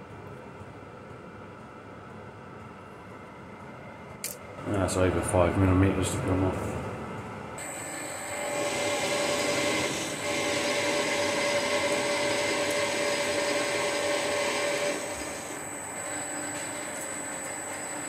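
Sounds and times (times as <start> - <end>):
machine whine: 2.6 - 18.0
metal lathe cutting steel: 7.6 - 18.0.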